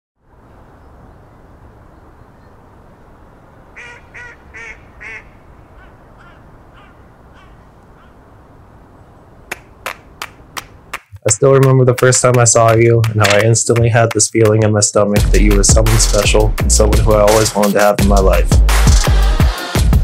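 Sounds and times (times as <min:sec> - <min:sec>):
waterfowl calling: 0:03.3 - 0:08.3, 0:09.0 - 0:11.2.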